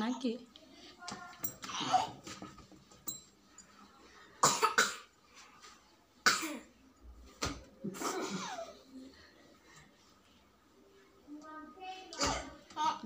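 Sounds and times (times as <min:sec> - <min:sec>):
person coughing: 0:04.4 - 0:05.1.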